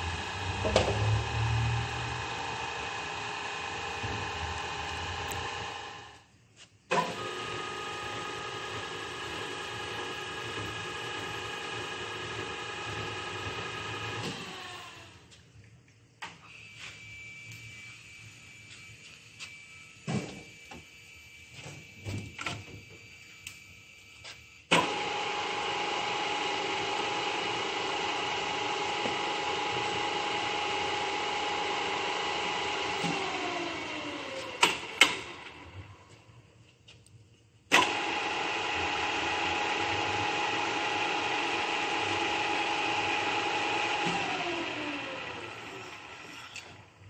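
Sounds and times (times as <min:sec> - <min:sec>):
drill motor whining: 0:16.4 - 0:36.1, 0:37.8 - 0:47.0.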